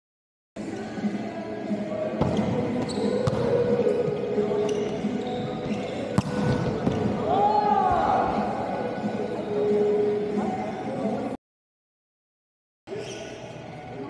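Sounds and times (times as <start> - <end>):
crowd chatter echoing: 0.6 - 11.4
basketball bouncing on court: 2.2 - 3.6, 6.1 - 7.2.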